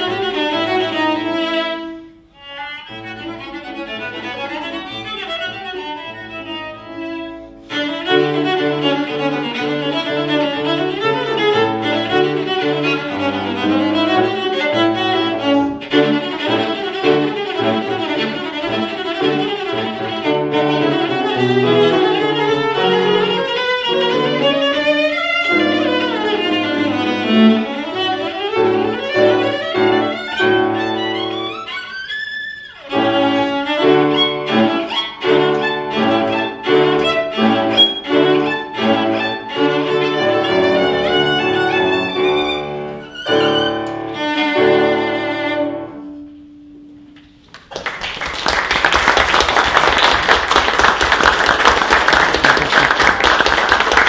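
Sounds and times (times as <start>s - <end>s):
cello and piano classical piece: 0.0s - 47.2s
audience applause: 47.5s - 54.0s.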